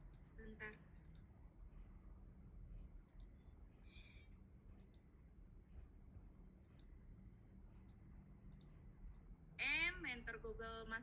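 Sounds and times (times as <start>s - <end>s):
computer mouse clicks: 1.0s - 1.3s, 3.0s - 3.4s, 4.8s - 5.1s, 6.6s - 7.0s, 7.7s - 9.3s.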